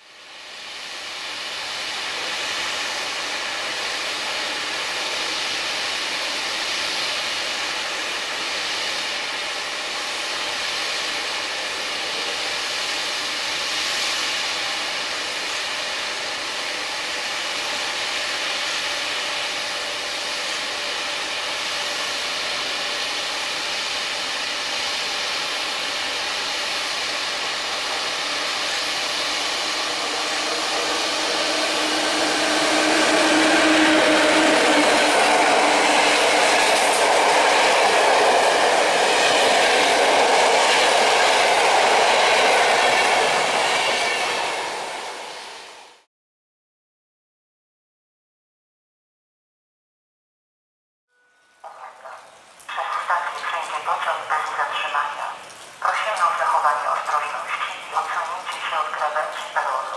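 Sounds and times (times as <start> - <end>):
approaching passenger train: 0.0 - 46.1, 51.2 - 59.9
rain hissing: 51.8 - 59.9.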